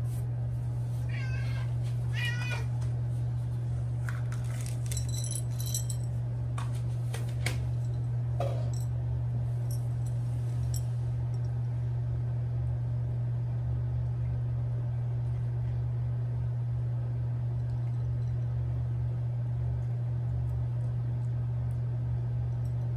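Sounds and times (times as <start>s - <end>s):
low hum: 0.0s - 22.9s
metallic jingle: 4.9s - 6.1s
cat eating from bowl: 17.4s - 22.9s.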